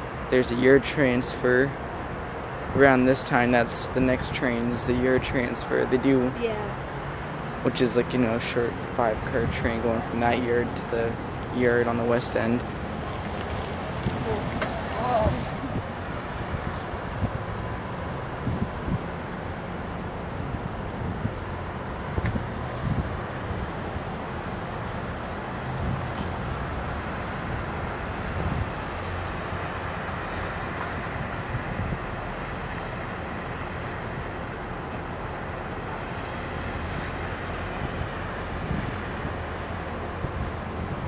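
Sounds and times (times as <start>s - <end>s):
diesel locomotive engine: 0.0s - 41.0s
wind buffeting microphone: 12.6s - 19.6s, 20.2s - 24.0s, 37.2s - 41.0s.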